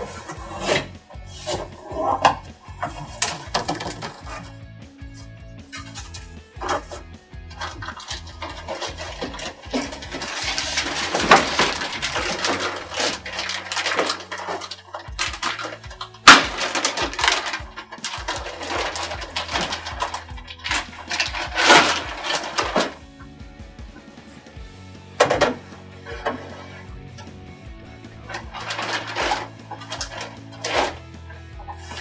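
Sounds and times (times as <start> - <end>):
plastic bag crinkling: 7.6 - 23.0, 28.0 - 31.0.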